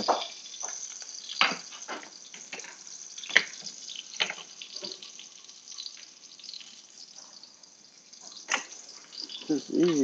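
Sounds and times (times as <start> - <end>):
steak sizzling in oil: 0.0 - 10.0.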